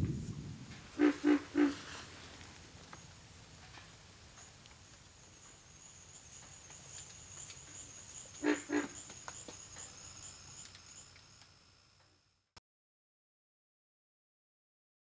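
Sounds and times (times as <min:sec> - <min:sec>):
loud animal calls: 0:01.0 - 0:02.1, 0:08.4 - 0:09.1
faint insect drone and trill: 0:01.0 - 0:12.6.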